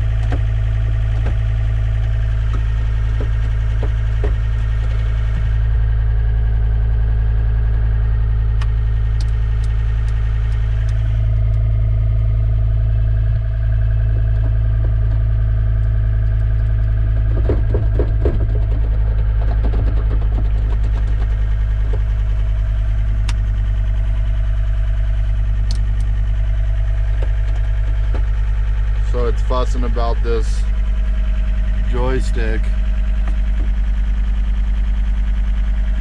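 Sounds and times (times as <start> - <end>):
diesel engine running: 0.0 - 36.0
rattling: 14.2 - 24.3.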